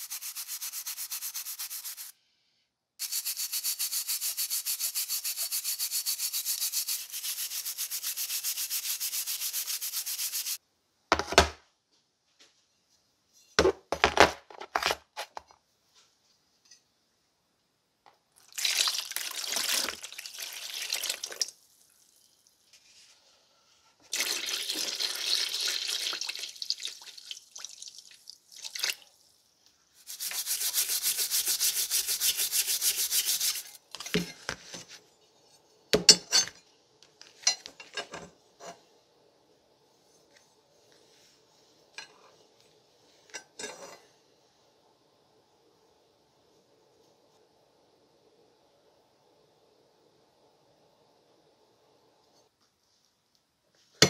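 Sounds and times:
wire brush scrubbing metal: 0.0s - 2.1s, 3.0s - 10.6s, 30.0s - 33.8s.

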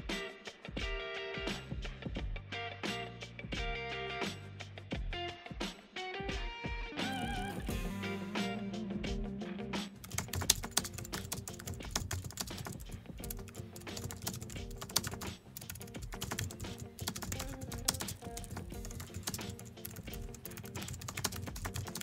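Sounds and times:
soft background music: 6.4s - 22.0s
keyboard typing clicks: 10.1s - 22.0s.

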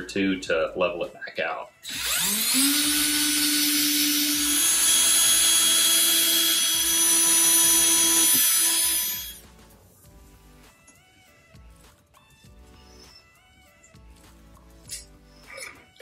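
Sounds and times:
cordless drill boring into wood: 1.8s - 9.4s.

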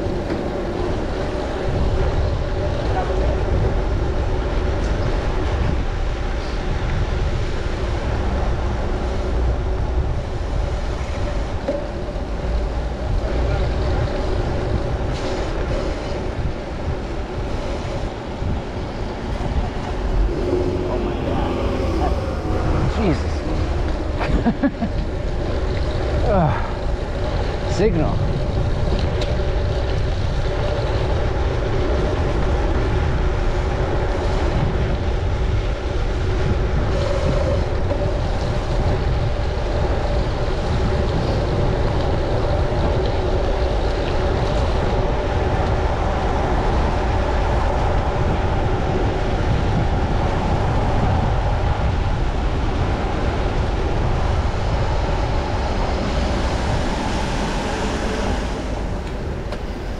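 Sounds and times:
wind and road noise rumble: 0.0s - 59.9s
steady humming tones: 7.8s - 32.6s.

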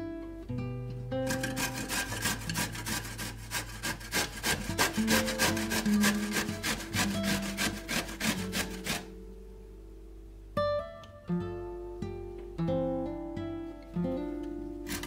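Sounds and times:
plucked guitar music: 0.0s - 15.0s
zucchini grated on box grater: 1.2s - 9.1s.

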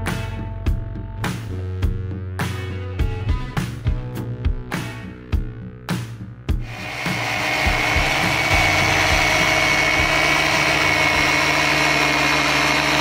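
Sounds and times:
rotary polisher whining: 6.6s - 13.0s.

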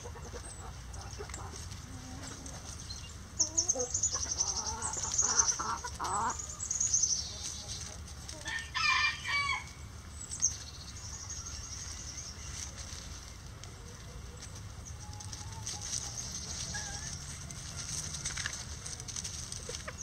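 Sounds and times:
chickens clucking: 0.0s - 20.0s
rooster crowing: 8.4s - 9.8s.

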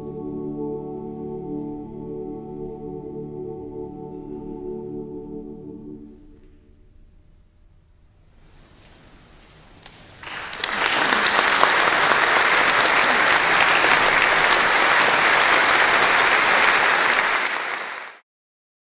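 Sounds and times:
audience applauding: 10.2s - 18.2s.

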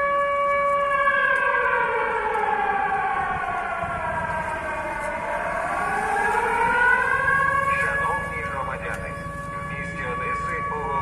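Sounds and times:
air raid siren wailing: 0.0s - 11.0s.

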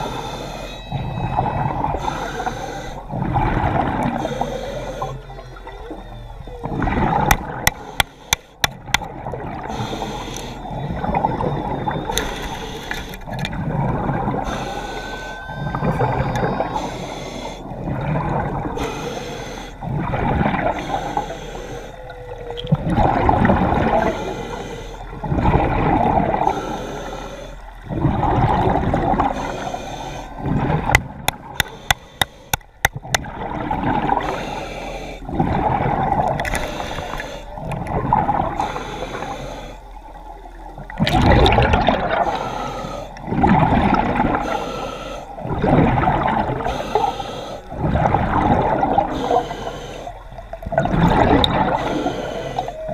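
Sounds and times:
breathing through a snorkel: 0.0s - 0.9s, 1.8s - 5.6s, 9.6s - 10.8s, 12.1s - 13.4s, 14.3s - 22.3s, 23.7s - 25.4s, 26.3s - 27.7s, 29.2s - 32.9s, 34.0s - 35.5s, 36.3s - 37.8s, 38.4s - 40.0s, 41.5s - 43.4s, 44.3s - 45.7s, 46.6s - 50.5s, 51.2s - 52.9s
water gurgling: 0.0s - 24.4s, 25.1s - 26.8s, 27.8s - 39.4s, 40.0s - 52.9s.

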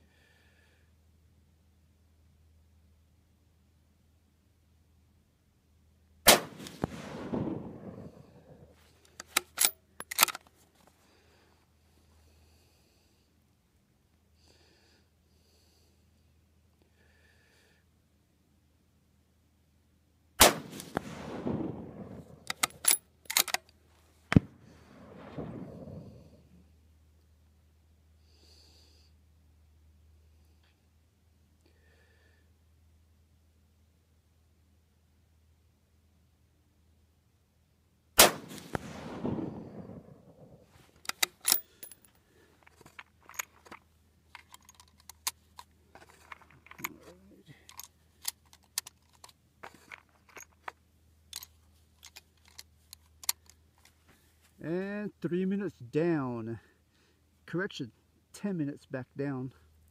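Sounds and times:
rifle shots with echo: 6.3s - 8.7s, 20.4s - 23.0s, 24.3s - 26.4s, 38.2s - 40.7s
rifle bolt metallic clicks: 9.1s - 10.5s, 20.4s - 24.5s, 41.0s - 42.1s, 42.7s - 43.8s, 44.4s - 47.0s, 47.6s - 53.9s
cartridges clinking in plastic box: 9.2s - 10.5s, 22.5s - 23.7s, 41.0s - 53.9s.

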